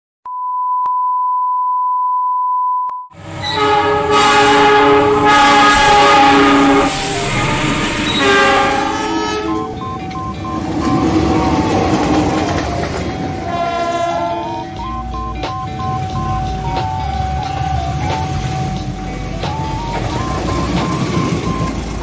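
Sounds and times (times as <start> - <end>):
steady beep tone: 0.3 - 3.1, 7.1 - 13.7, 14.3 - 22.0
locomotive air horn blast: 3.2 - 9.8, 13.3 - 14.9
passing train rumble: 3.2 - 22.0.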